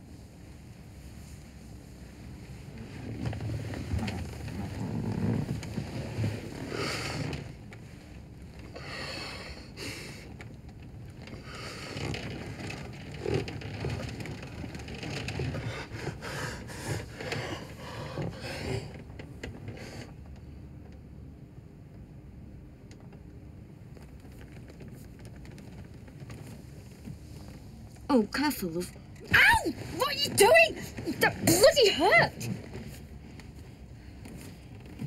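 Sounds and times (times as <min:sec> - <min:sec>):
steady low rumble: 0:00.0 - 0:35.0
clothing rustling and scraping: 0:00.1 - 0:08.8, 0:10.6 - 0:20.2, 0:23.9 - 0:28.1, 0:29.6 - 0:35.0.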